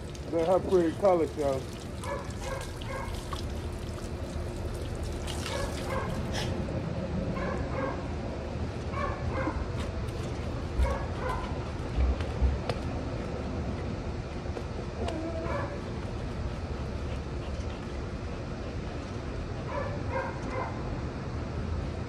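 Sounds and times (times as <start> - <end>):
dogs barking and yipping: 2.0 - 3.2, 5.5 - 6.4, 7.3 - 8.1, 8.9 - 9.8, 10.8 - 11.6, 15.0 - 15.9, 19.6 - 20.8.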